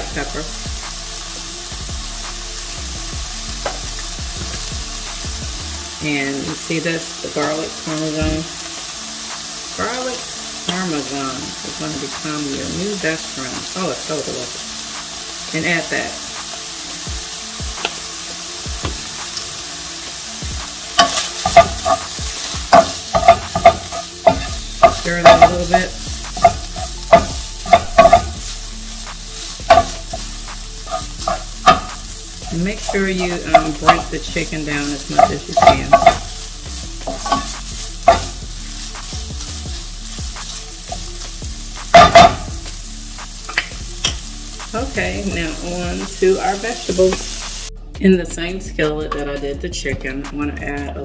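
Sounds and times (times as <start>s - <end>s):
ground meat sizzling in skillet: 0.0s - 47.8s
wooden spoon knocking on pan: 21.0s - 22.1s, 22.7s - 28.5s, 29.6s - 30.3s, 30.9s - 36.4s, 37.0s - 39.1s, 41.9s - 42.6s.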